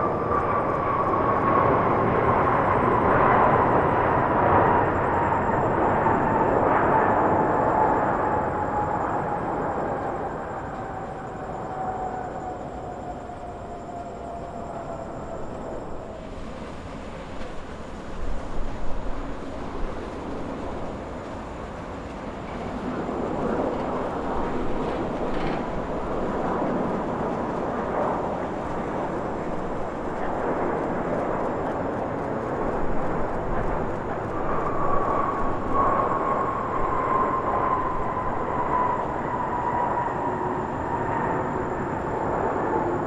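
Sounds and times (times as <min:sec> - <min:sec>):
jet airliner passing by: 0:00.0 - 0:43.0.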